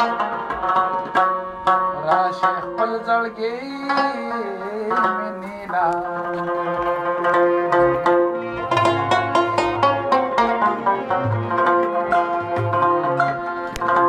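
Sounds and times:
tabla strokes: 0.0s - 2.0s, 6.0s - 14.0s
harmonium: 0.0s - 14.0s
person singing: 1.9s - 14.0s.

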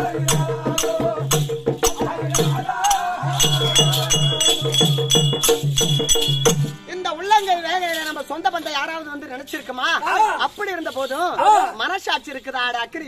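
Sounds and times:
steady drum beat: 0.0s - 7.6s
jingling rattling percussion: 0.0s - 13.0s.

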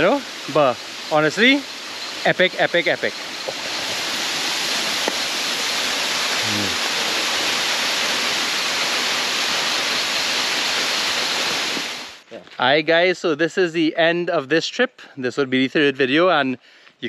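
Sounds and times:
waterfall rushing: 0.0s - 12.2s.

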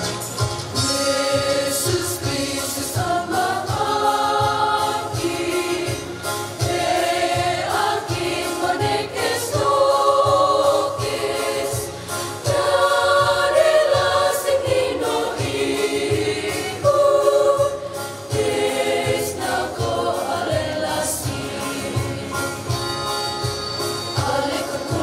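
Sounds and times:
children's choir singing a hymn: 0.8s - 22.8s, 24.1s - 25.0s.

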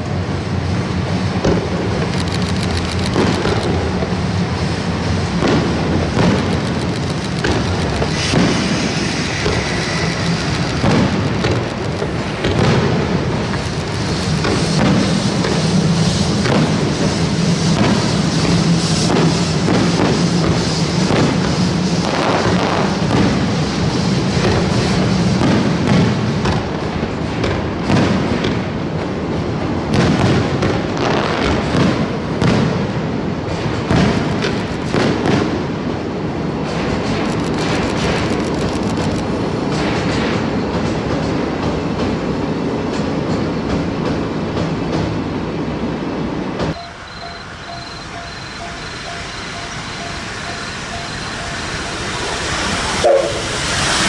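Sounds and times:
steam locomotive exhaust beats: 0.0s - 54.0s
train rumbling on steel bridge: 0.0s - 54.0s.

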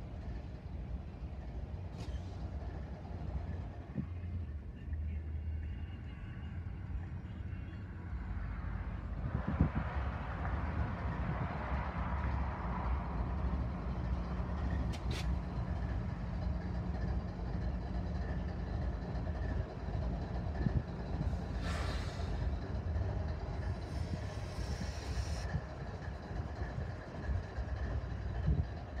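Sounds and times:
diesel locomotive engines droning: 0.0s - 29.0s
short air hisses: 21.6s - 22.4s, 23.9s - 25.5s.

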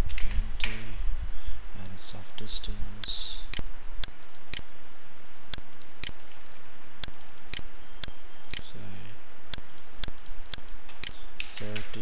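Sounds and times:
steady hiss: 0.2s - 7.0s
computer mouse clicks: 5.5s - 6.2s, 7.0s - 8.7s, 9.5s - 12.0s.

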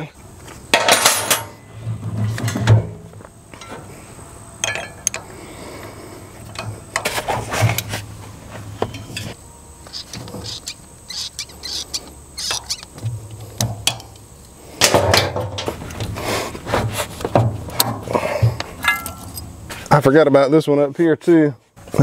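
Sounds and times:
metal clinks and clunks: 18.8s - 19.5s.

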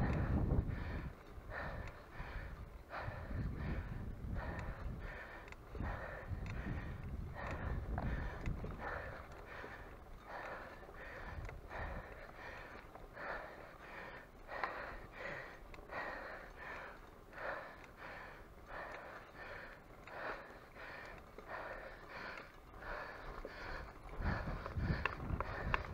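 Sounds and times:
hard rhythmic breathing: 0.0s - 25.9s.

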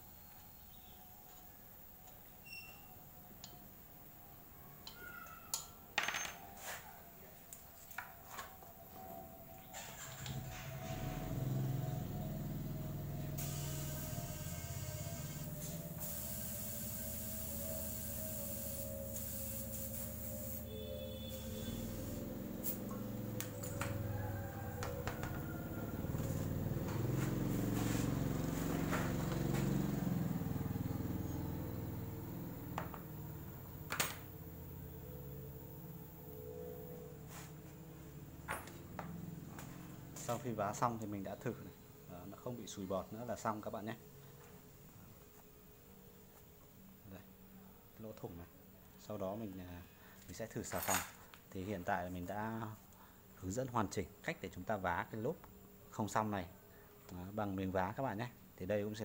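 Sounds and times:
low mechanical drone: 9.7s - 40.5s.

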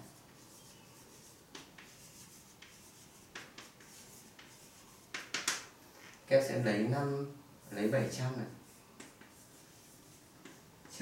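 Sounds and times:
chalk writing on chalkboard: 0.0s - 5.7s, 8.6s - 11.0s.

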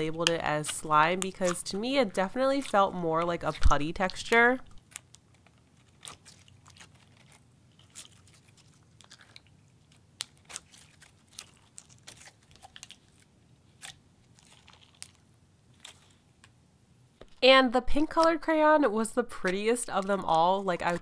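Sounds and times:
slime clicking and crackling: 0.0s - 16.6s.

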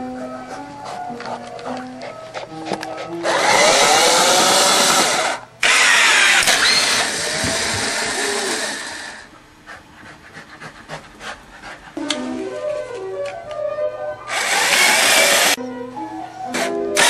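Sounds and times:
machine motors whirring: 3.2s - 9.2s, 14.3s - 15.6s.

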